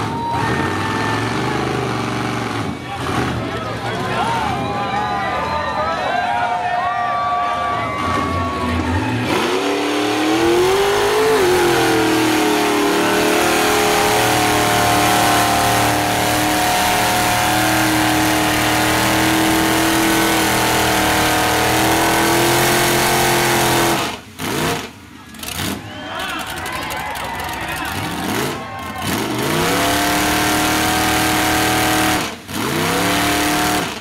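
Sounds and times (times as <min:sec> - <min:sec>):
engine revving hard: 0:00.0 - 0:03.6, 0:09.2 - 0:25.8, 0:28.0 - 0:34.0.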